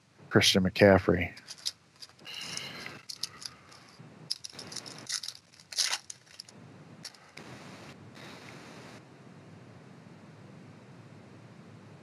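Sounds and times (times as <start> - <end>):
trading cards rustling: 1.3 - 7.4
foil wrapper crinkling: 1.4 - 7.3.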